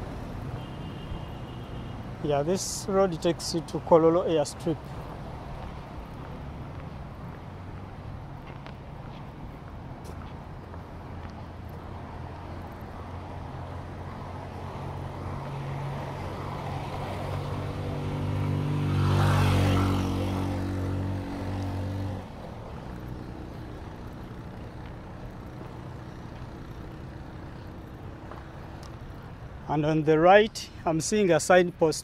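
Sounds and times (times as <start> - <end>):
low traffic hum: 0.0 - 32.0
car passing: 2.5 - 29.6
motorcycle passing: 10.6 - 29.5.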